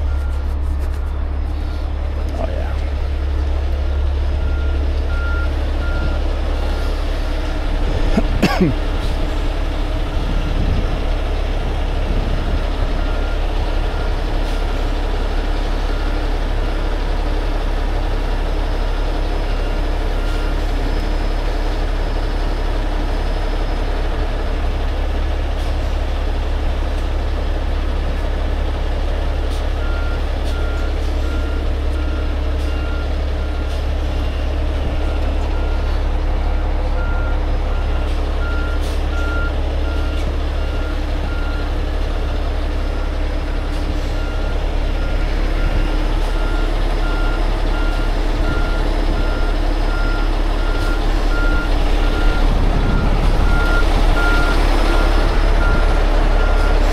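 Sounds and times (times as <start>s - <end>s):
diesel engine running: 0.0s - 56.9s
reversing alarm beeping: 4.3s - 7.0s, 36.9s - 41.8s, 42.8s - 56.9s.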